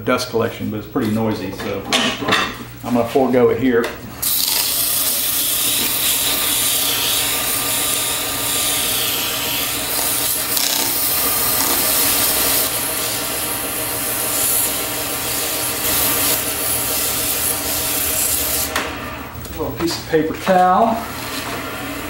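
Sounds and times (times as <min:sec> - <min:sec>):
lathe motor hum: 0:04.2 - 0:22.0
sandpaper hissing on spinning wood: 0:04.3 - 0:18.7.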